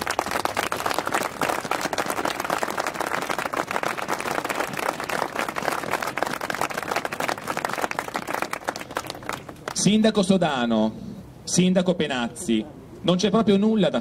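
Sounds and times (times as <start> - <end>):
crowd applauding: 0.0 - 9.9.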